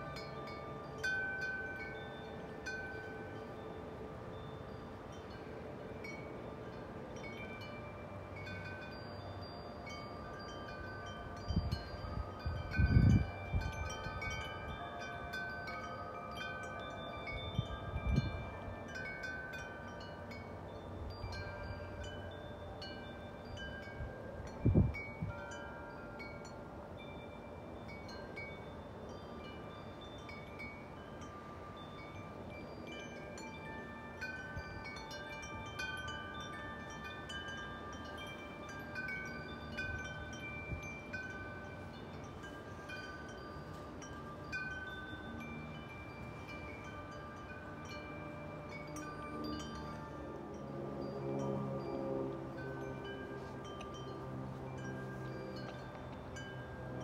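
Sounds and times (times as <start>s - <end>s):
metal wind chime ringing: 0.0s - 57.0s
wind buffeting microphone: 11.3s - 15.5s, 23.5s - 25.8s.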